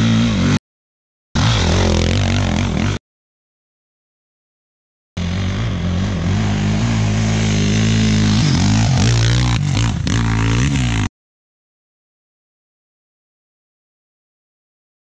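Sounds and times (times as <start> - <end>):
dirt bike engine revving: 0.0 - 0.6, 1.4 - 3.0, 5.2 - 11.1.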